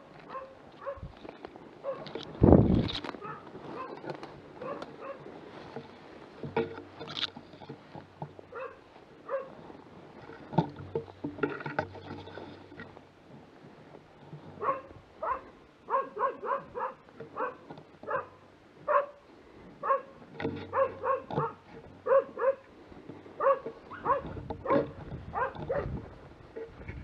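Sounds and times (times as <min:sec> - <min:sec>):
reeds and brush rustling: 0:00.0 - 0:27.0
dog barking: 0:00.3 - 0:01.1, 0:01.8 - 0:02.1, 0:03.2 - 0:04.0, 0:04.6 - 0:05.2, 0:08.5 - 0:09.5, 0:14.6 - 0:19.2, 0:19.8 - 0:20.1, 0:20.7 - 0:22.6, 0:23.4 - 0:25.9.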